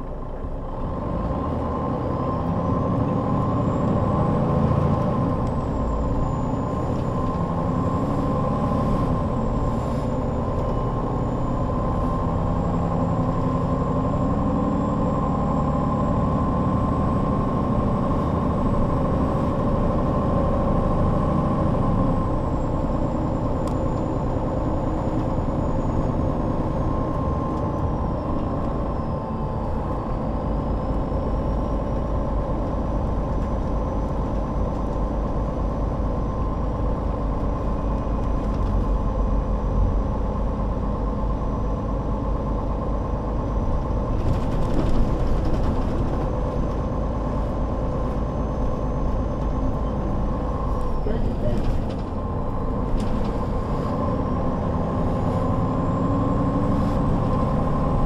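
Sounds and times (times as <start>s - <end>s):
bus diesel engine running: 0.0s - 58.0s.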